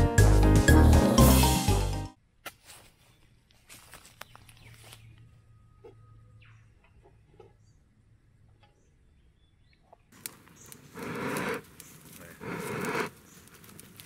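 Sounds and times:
bellows puffing air: 0:10.8 - 0:13.4.

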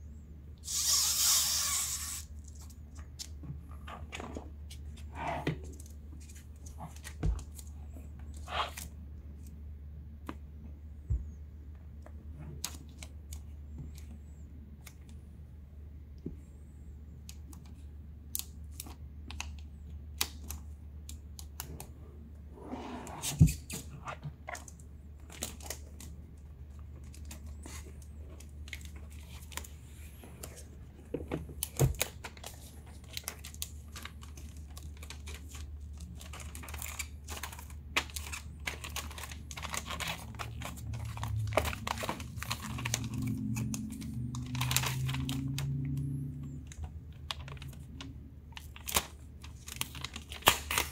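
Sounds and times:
plastic film crinkling: 0:31.6 - 0:45.8, 0:46.6 - 0:50.9.

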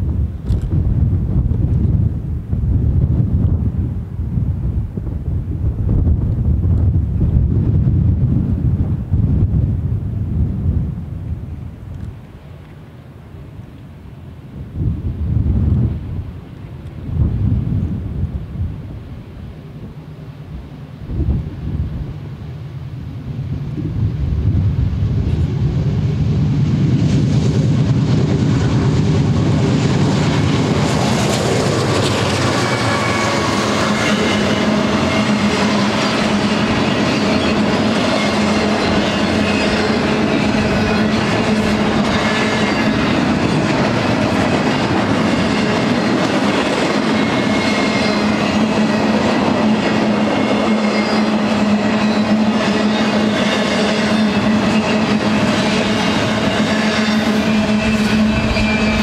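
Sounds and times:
locomotive engine rumble: 0:00.0 - 0:47.4, 0:53.8 - 0:59.0
freight cars rumbling: 0:22.9 - 0:59.0
clacking train wheels: 0:27.0 - 0:59.0
ringing wheel whine: 0:51.0 - 0:59.0.

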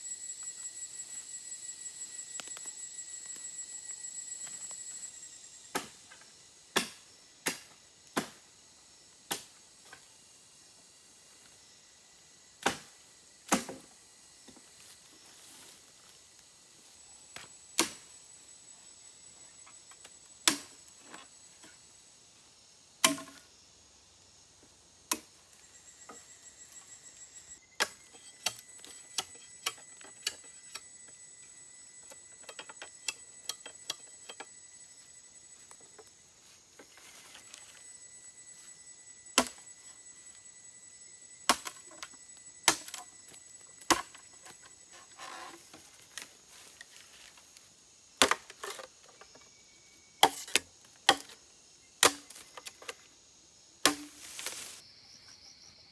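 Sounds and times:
machete striking bamboo: 0:05.7 - 0:06.0, 0:06.7 - 0:08.4, 0:09.3 - 0:09.6, 0:12.6 - 0:13.9, 0:17.4 - 0:18.1, 0:20.4 - 0:20.8, 0:23.0 - 0:23.4, 0:25.1 - 0:25.3, 0:27.8 - 0:30.8, 0:39.4 - 0:39.6, 0:41.4 - 0:43.1, 0:43.8 - 0:44.2, 0:48.2 - 0:48.9, 0:50.2 - 0:51.4, 0:52.0 - 0:52.9, 0:53.8 - 0:54.7
rustling of dry leaves underfoot: 0:54.0 - 0:54.8.

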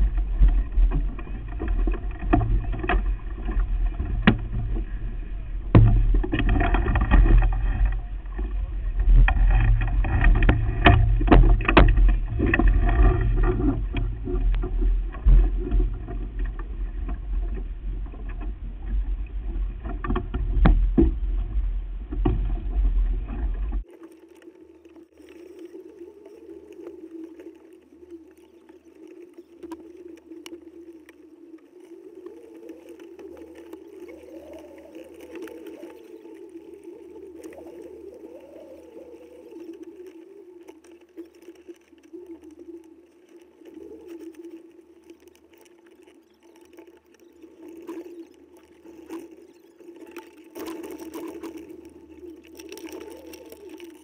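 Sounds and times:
faint wavering hum: 0:00.0 - 0:41.3
wind and water rumbling: 0:00.0 - 0:54.0.

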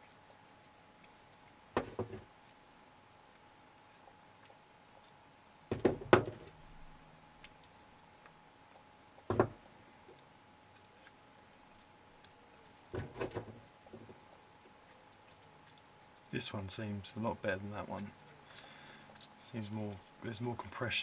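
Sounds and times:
plastic parts knocking on wood: 0:05.7 - 0:06.5, 0:09.3 - 0:09.6.

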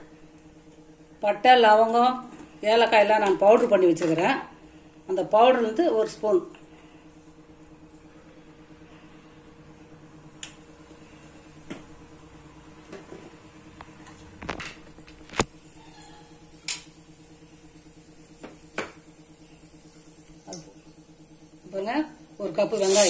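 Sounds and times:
steady low hum: 0:00.0 - 0:23.0
spices popping in hot oil: 0:22.6 - 0:23.0.

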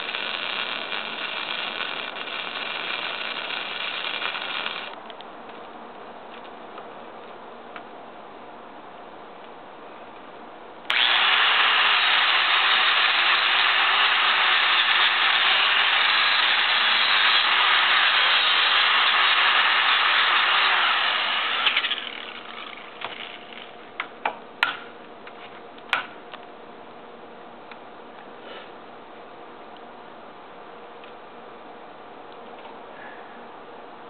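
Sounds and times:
welding arc crackling hiss: 0:00.0 - 0:05.0, 0:11.0 - 0:23.7.

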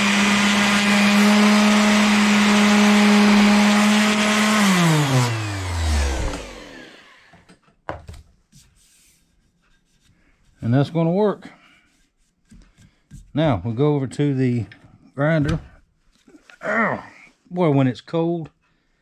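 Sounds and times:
orbit sander sanding metal: 0:00.0 - 0:07.3
sander spinning down whine: 0:00.0 - 0:07.4.

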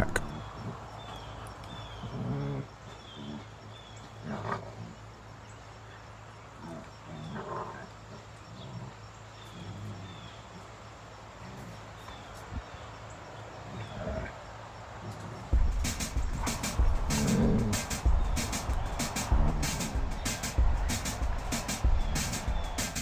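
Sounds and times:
dogs growling: 0:00.0 - 0:05.0, 0:06.6 - 0:10.7, 0:11.4 - 0:11.9, 0:13.6 - 0:14.4, 0:16.5 - 0:17.9
dogs snarling: 0:01.7 - 0:05.0, 0:06.6 - 0:10.7, 0:11.4 - 0:12.0, 0:13.6 - 0:14.4, 0:15.0 - 0:18.5.

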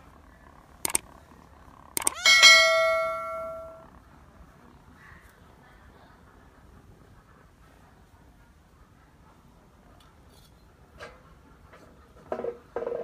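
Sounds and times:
light clicks: 0:00.8 - 0:01.0
metallic clang ringing: 0:02.0 - 0:03.8.

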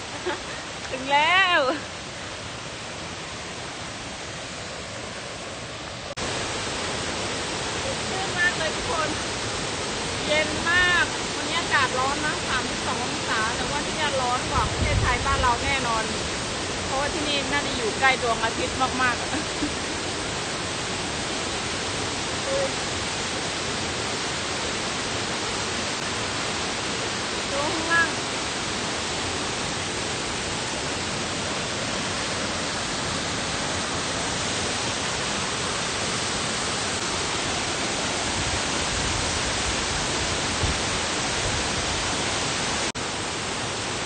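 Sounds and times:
waterfall roaring: 0:00.0 - 0:44.0.

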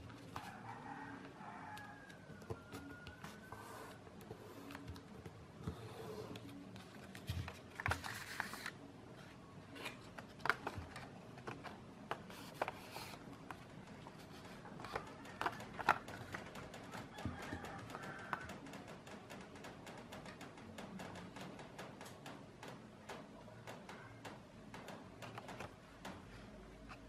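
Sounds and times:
paper rustling and crinkling: 0:06.3 - 0:13.2.

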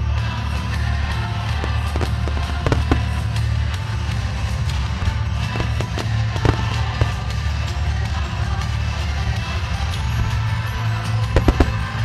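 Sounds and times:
music with heavy bass: 0:00.0 - 0:12.0
firework shells bursting: 0:01.5 - 0:07.6, 0:11.3 - 0:12.0.

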